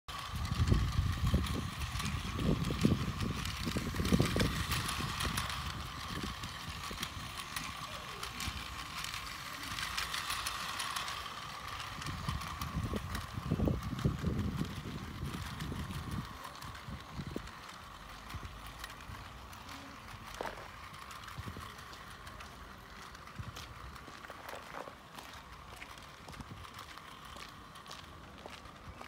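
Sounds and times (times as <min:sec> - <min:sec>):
toy train motor whine: 0:00.1 - 0:29.0.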